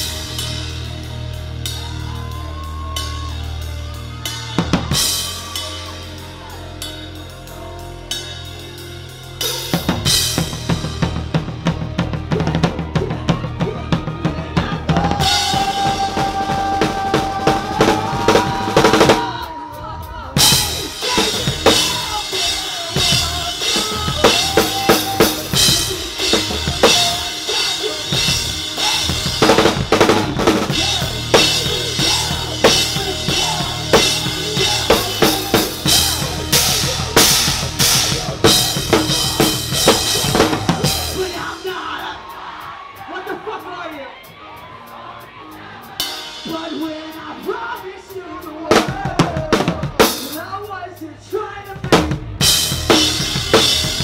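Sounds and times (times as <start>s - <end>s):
electric guitars: 0.0s - 41.8s
rock band playing: 0.0s - 54.0s.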